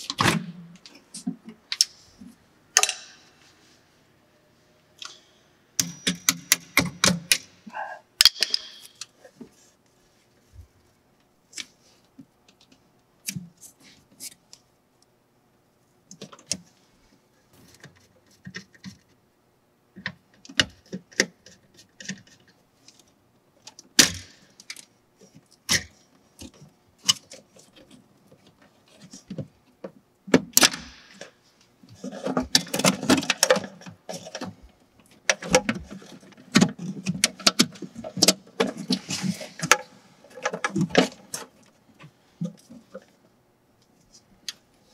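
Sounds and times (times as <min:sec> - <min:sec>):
wires rustling and scraping: 0:24.6 - 0:29.8, 0:31.2 - 0:44.9.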